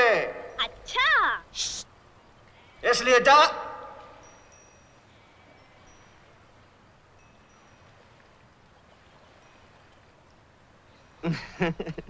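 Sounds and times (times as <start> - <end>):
faint soundtrack hiss: 0.0 - 12.0.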